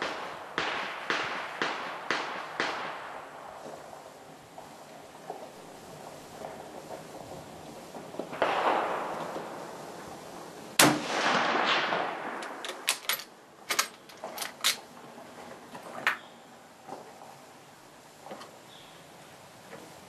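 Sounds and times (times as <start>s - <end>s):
rifle shot with echo: 0.0s - 3.4s, 8.4s - 9.5s, 10.8s - 12.6s
metallic clacks of rifle bolt: 12.4s - 14.9s.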